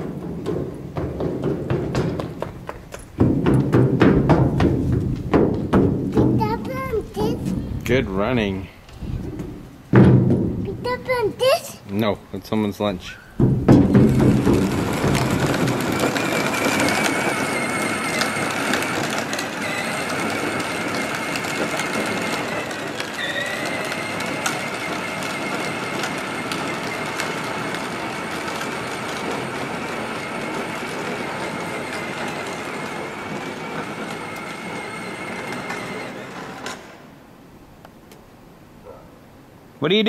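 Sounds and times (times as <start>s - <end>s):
plastic wheels rolling on pavement: 0.0s - 37.2s
electric motor whine: 13.9s - 37.1s.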